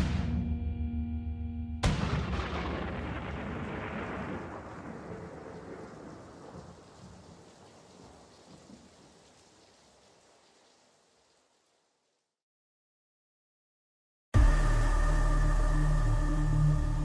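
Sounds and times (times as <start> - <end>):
deep thunder-like boom rumbling: 1.8 - 7.5.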